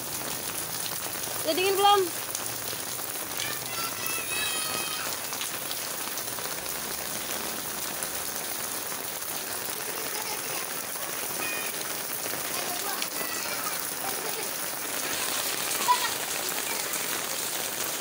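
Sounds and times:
rain on wet pavement: 0:00.0 - 0:18.0.

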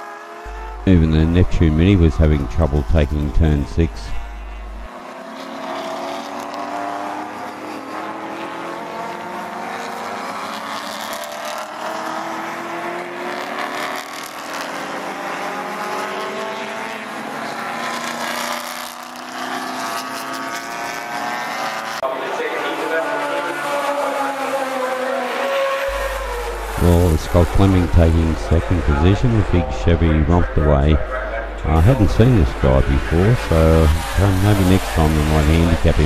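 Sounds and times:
race car engines: 0:00.0 - 0:36.0.

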